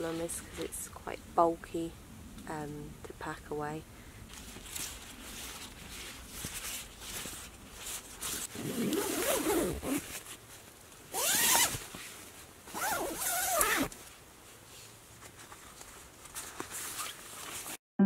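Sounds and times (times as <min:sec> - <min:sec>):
tent zipper pulled: 0:08.2 - 0:10.2, 0:11.1 - 0:12.1, 0:12.7 - 0:14.0.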